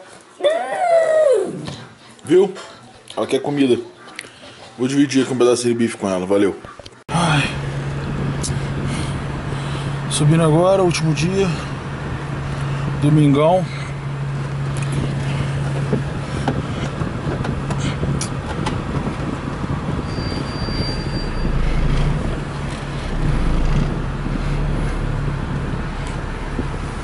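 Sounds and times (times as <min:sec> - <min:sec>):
road noise: 0:07.0 - 0:27.0
car engine hum: 0:07.1 - 0:27.0.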